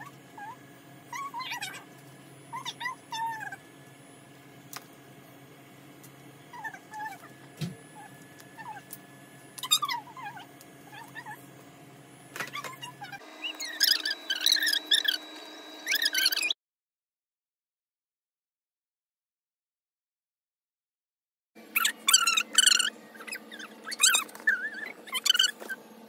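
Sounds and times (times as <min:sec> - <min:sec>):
high-pitched vocal calls: 0:00.0 - 0:01.9, 0:02.5 - 0:03.6, 0:12.5 - 0:16.6, 0:21.7 - 0:25.8.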